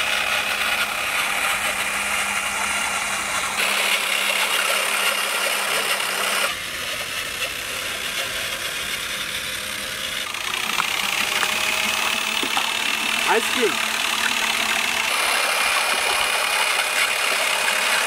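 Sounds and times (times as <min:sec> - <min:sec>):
electric drill mixing: 0:00.0 - 0:18.0.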